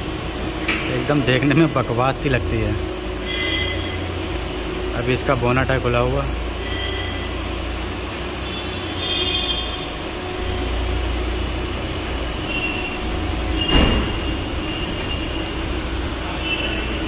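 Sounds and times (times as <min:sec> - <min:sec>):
low rumble of workshop machinery: 0:00.0 - 0:17.0.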